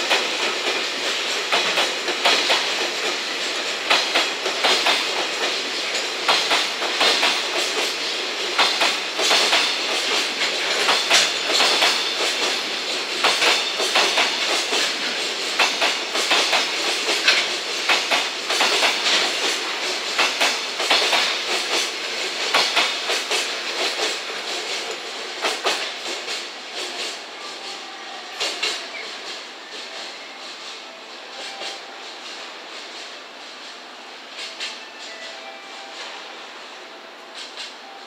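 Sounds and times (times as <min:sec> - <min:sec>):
freight train passing: 0:00.0 - 0:38.0
wheels clicking over rail joints: 0:00.1 - 0:27.2.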